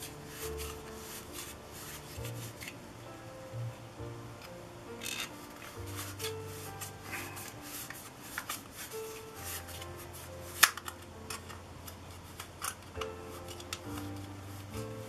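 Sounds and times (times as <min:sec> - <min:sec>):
background music: 0:00.0 - 0:15.0
plastic lens hoods clicking: 0:10.5 - 0:14.3.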